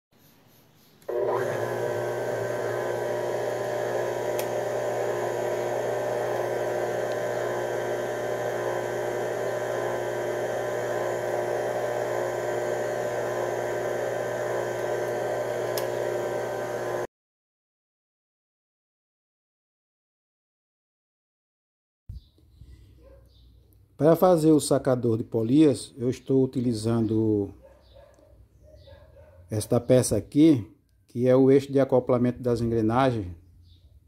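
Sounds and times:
electric hum with whir: 0:01.0 - 0:17.1.

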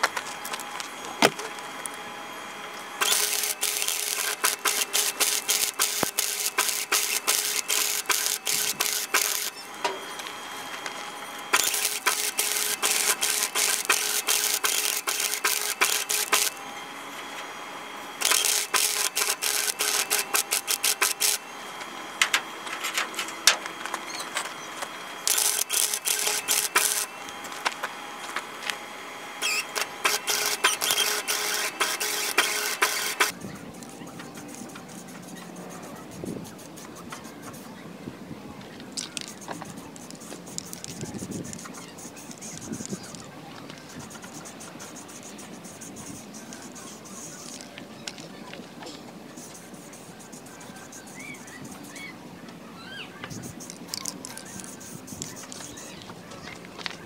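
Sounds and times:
steady hum: 0:00.0 - 0:57.0
welder arc crackling: 0:02.9 - 0:16.6, 0:18.2 - 0:21.4, 0:24.8 - 0:28.8, 0:29.4 - 0:35.1.

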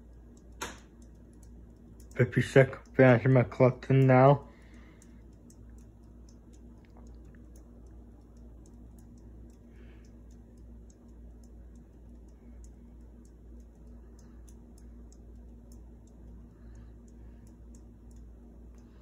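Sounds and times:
ceiling fan motor hum: 0:00.0 - 0:19.0
faint fan ticking: 0:00.0 - 0:19.0.

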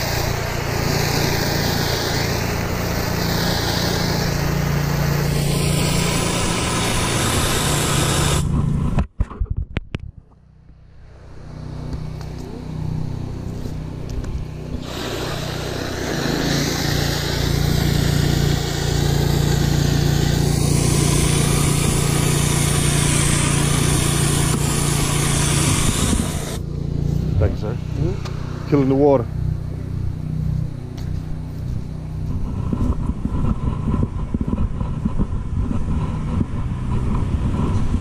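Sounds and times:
pressure washer spraying water: 0:00.0 - 0:08.7, 0:12.0 - 0:28.7
engine hum: 0:00.0 - 0:38.0.

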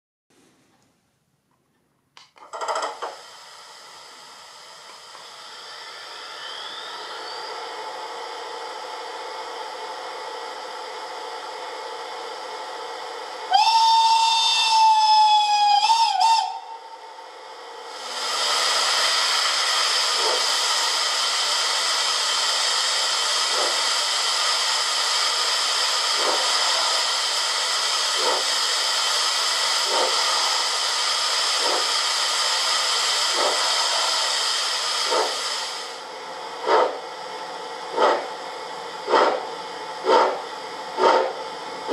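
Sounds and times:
steam hiss: 0:02.8 - 0:11.0, 0:13.1 - 0:17.0, 0:17.8 - 0:41.9
steam exhaust chuff: 0:02.9 - 0:41.9
steam whistle blast: 0:13.5 - 0:16.9.

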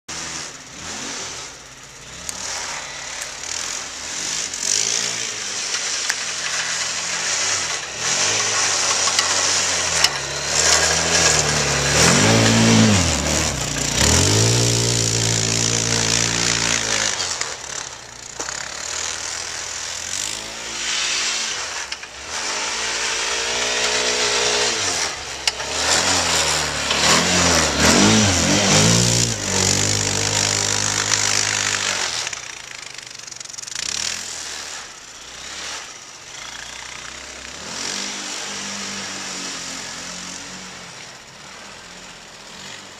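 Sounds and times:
quad bike engine revving: 0:00.1 - 0:42.9.

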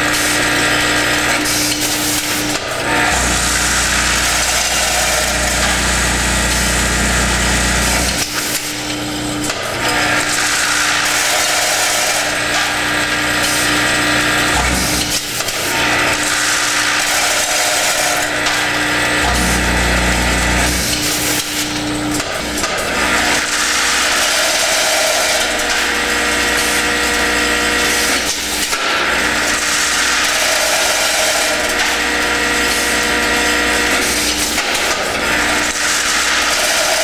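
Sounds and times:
steady machine hum: 0:00.0 - 0:28.2
deeper machine drone: 0:02.8 - 0:08.4, 0:18.4 - 0:22.1.

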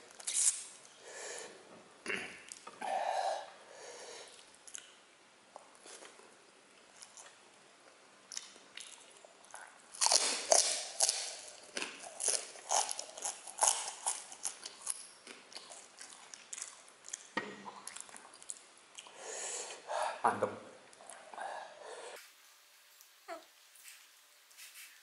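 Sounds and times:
person chewing and crunching: 0:08.3 - 0:19.2.

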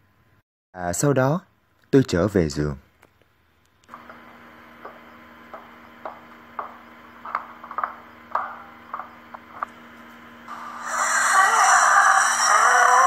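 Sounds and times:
faint steady hum: 0:00.0 - 0:13.0
barefoot footsteps: 0:03.9 - 0:10.2
loud noisy sound: 0:10.5 - 0:13.0.

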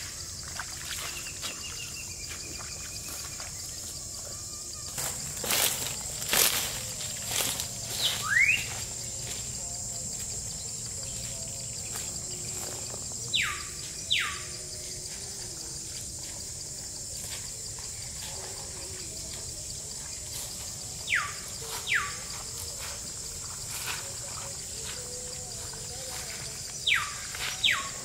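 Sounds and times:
insects droning: 0:00.0 - 0:28.0
bird whistling: 0:08.0 - 0:08.7.

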